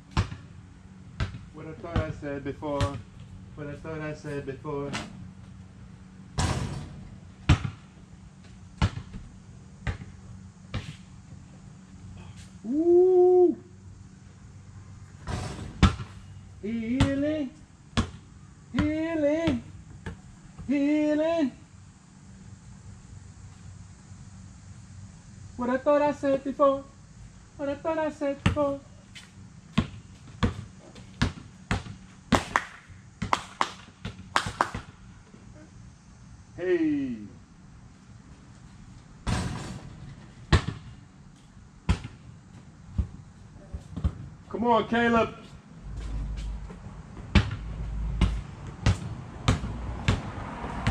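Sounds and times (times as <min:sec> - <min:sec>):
basketball bouncing on pavement: 0:00.0 - 0:03.3, 0:06.4 - 0:11.0, 0:15.2 - 0:16.2, 0:16.8 - 0:20.7, 0:28.4 - 0:35.0, 0:39.2 - 0:41.0, 0:41.8 - 0:44.5, 0:46.6 - 0:50.9.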